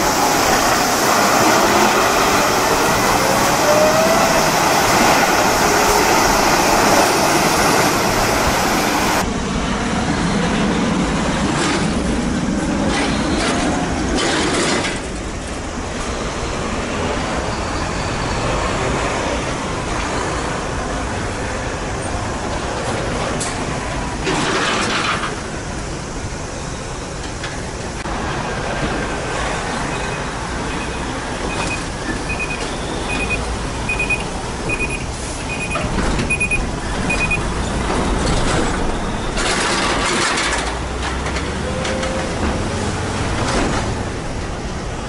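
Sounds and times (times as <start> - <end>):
diesel truck engine revving: 0.0 - 9.2
traffic of passing trucks: 0.0 - 45.0.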